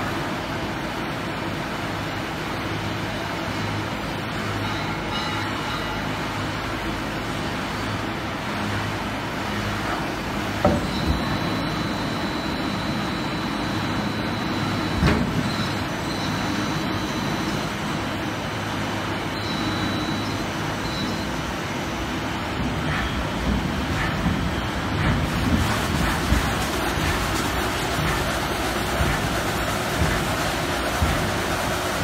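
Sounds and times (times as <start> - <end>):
machinery humming: 0.0 - 32.0
thin high whine: 10.6 - 25.0.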